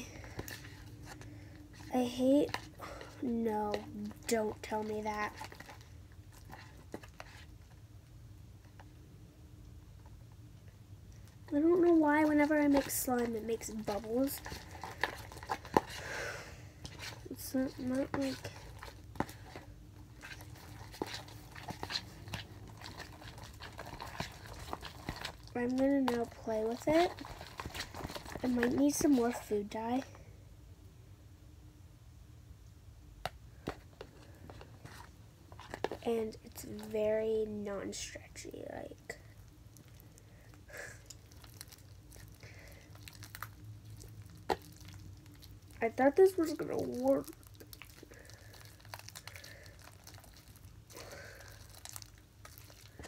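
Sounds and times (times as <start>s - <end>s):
slime squishing: 0.0s - 7.8s, 11.0s - 30.2s, 33.3s - 53.0s.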